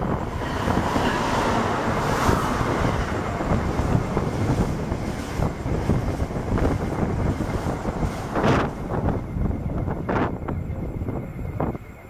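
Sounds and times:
train passing at speed: 0.0s - 12.0s
wind buffeting microphone: 0.0s - 12.0s.

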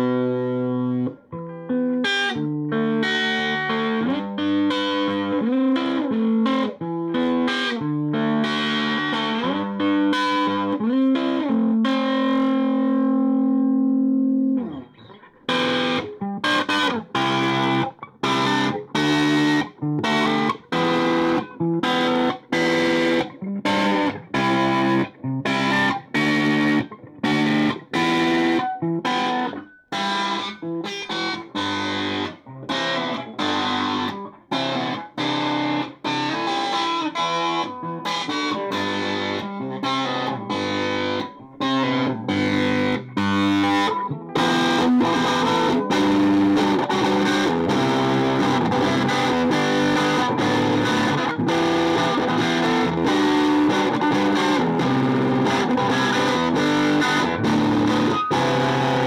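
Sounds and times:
overdriven electric guitar chords: 0.0s - 59.0s.

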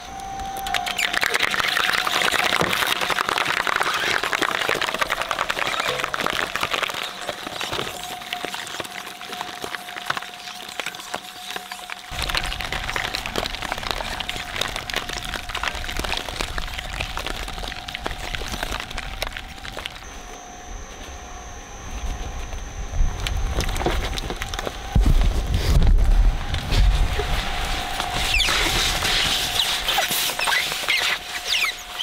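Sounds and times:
machine humming: 0.0s - 32.0s
shredder crunching object: 0.6s - 20.4s
low rumble: 12.1s - 30.5s.

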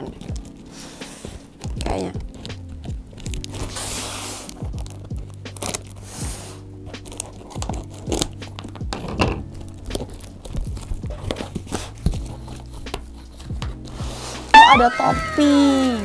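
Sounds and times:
scissors cutting packing tape: 0.0s - 14.5s
tape tearing and crinkling: 0.0s - 16.0s.

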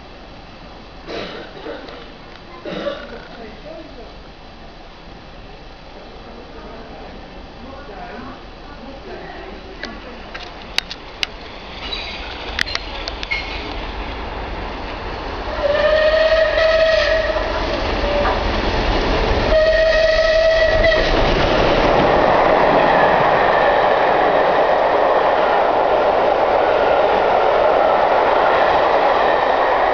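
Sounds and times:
train wheels rushing on rails: 0.0s - 29.9s
steam locomotive whistle: 15.5s - 18.5s, 19.4s - 21.3s.

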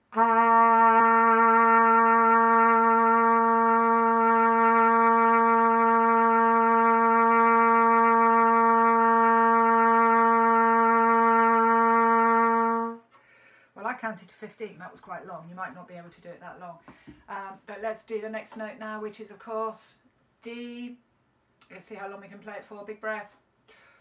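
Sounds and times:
trumpet long steady note: 0.0s - 13.1s.

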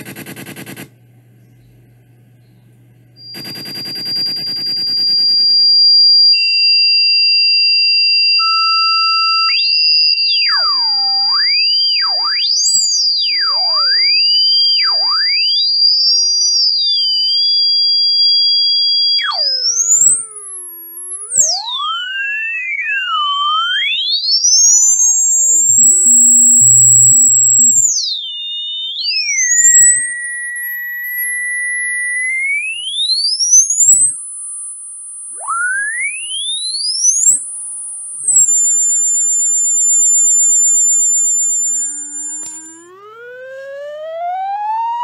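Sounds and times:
low electronic buzz: 0.0s - 6.4s, 18.1s - 28.0s, 32.6s - 43.5s
electronic tones sweeping in pitch: 3.2s - 45.0s
high-pitched electronic whistles: 3.2s - 45.0s.

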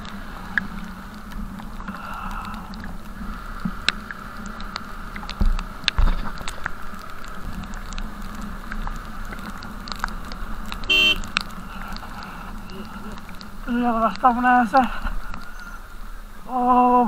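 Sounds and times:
raindrops tapping on camera: 0.0s - 16.5s
motorcycle engine and road hum: 0.0s - 17.0s
short beep: 10.9s - 11.2s.

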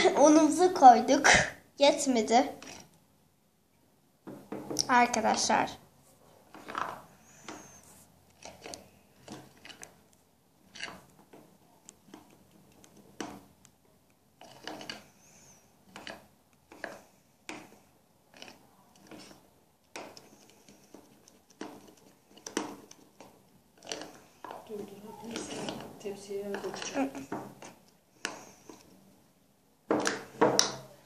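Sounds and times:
hand mixing batter in bowl: 4.8s - 5.8s, 6.4s - 29.2s.

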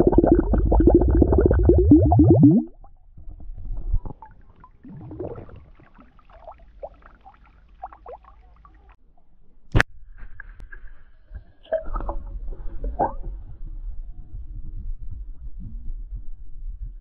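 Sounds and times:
water glugging from glass flask: 0.0s - 2.8s, 4.0s - 8.7s
water gurgles and plops: 0.0s - 9.0s.

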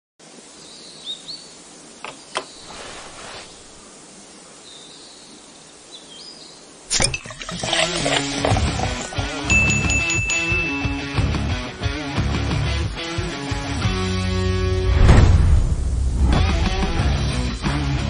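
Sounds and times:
steady background hiss: 0.2s - 9.6s
birds chirping: 0.6s - 6.8s
light clinks: 9.5s - 10.9s.

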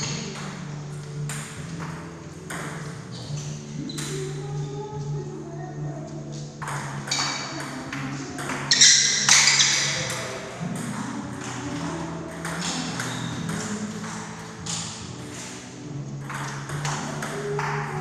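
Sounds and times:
table tennis ball clicks: 6.6s - 18.0s.

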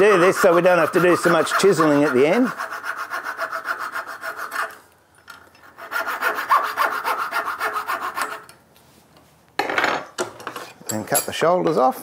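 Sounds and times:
coping saw cutting wood: 0.0s - 4.8s, 5.8s - 8.4s.

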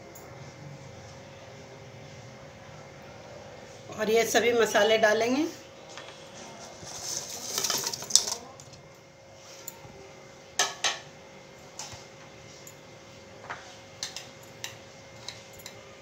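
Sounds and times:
spices poured into steel pot: 6.8s - 8.7s.

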